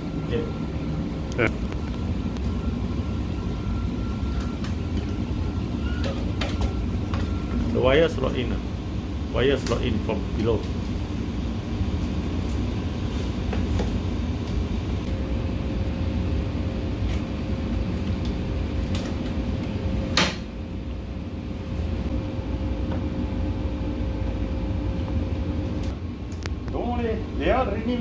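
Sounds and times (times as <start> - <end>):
low background hum: 0.0 - 28.0.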